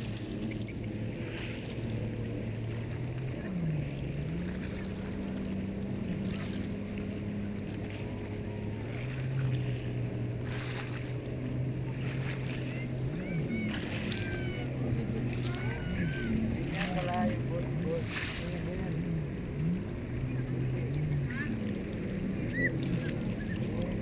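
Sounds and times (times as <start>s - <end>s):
motorboat engine running: 0.0s - 24.0s
water noise: 0.0s - 24.0s
wind: 0.0s - 24.0s.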